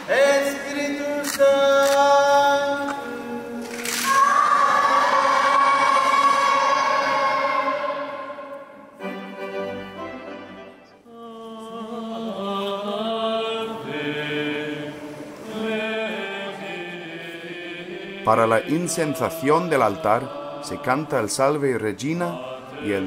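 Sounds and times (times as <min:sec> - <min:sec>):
choir singing slow chant: 0:00.0 - 0:09.1, 0:11.0 - 0:23.0.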